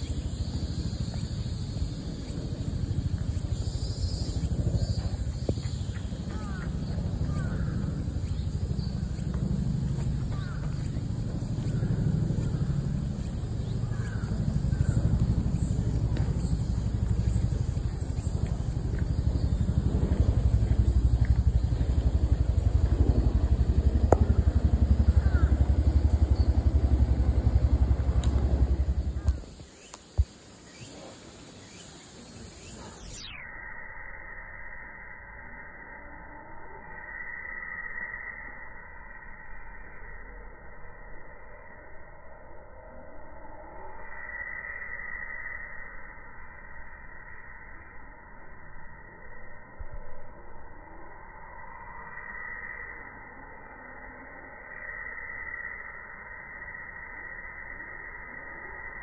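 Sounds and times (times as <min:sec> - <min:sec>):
engine throbbing: 0:00.0 - 0:30.4
steady low rumble: 0:00.0 - 0:32.8
faint bird chirps: 0:00.0 - 0:59.0.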